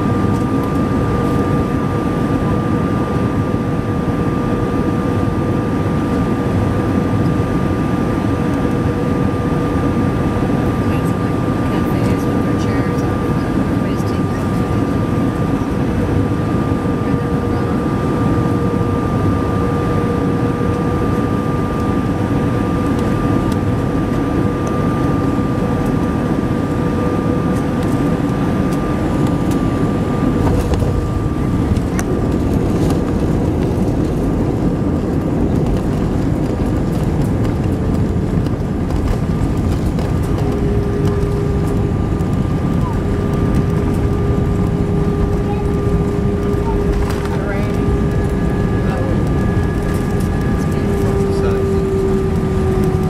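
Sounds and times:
jet engine and airflow noise: 0.0 - 53.0
steady whining tones: 0.0 - 53.0
wheels rolling on runway: 30.4 - 53.0.

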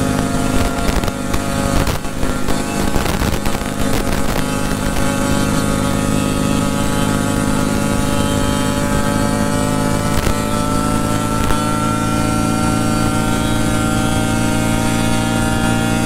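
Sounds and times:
motorcycle engine running: 0.0 - 16.0.

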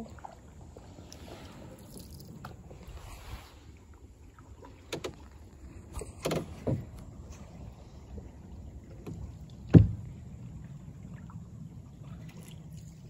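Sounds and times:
kayak hull knocking: 4.6 - 7.4, 8.8 - 10.2.

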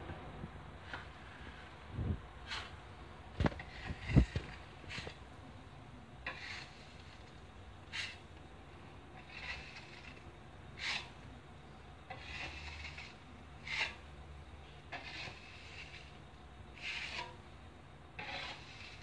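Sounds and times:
putty knife scraping wall: 3.4 - 5.2, 6.2 - 8.3, 9.2 - 11.2, 12.1 - 14.0, 14.9 - 17.4, 18.2 - 19.0.

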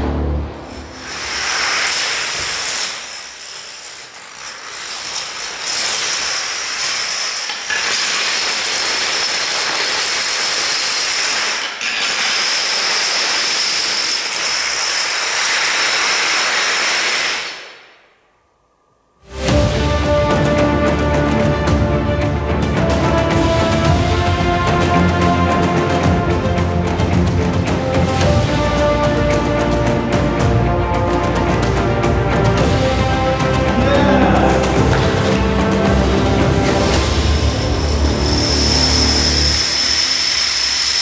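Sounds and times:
plastic dominoes clattering: 1.0 - 17.5.

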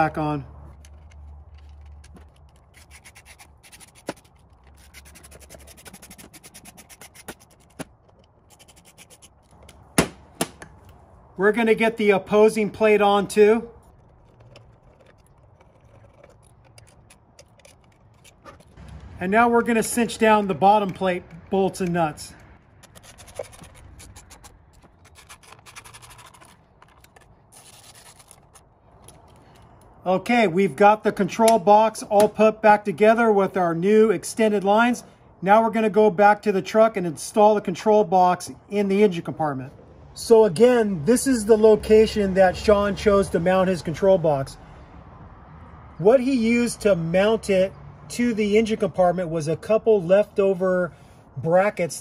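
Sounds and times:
metal parts clicking against box: 13.8 - 19.0.

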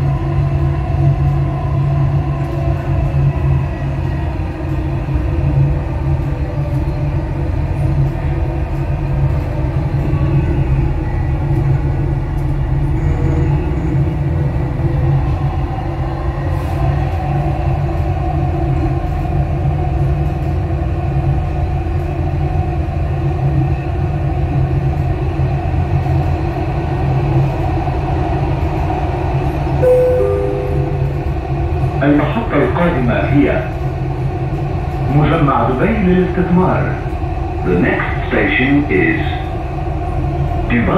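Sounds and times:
train wheels rumbling on track: 0.0 - 29.8, 31.0 - 40.9
two-note falling chime: 29.8 - 31.4.

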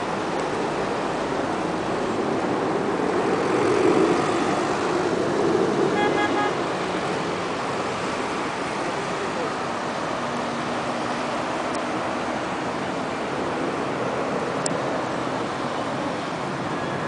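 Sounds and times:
passing cars: 0.0 - 17.0
car horn beeps: 5.9 - 6.6.

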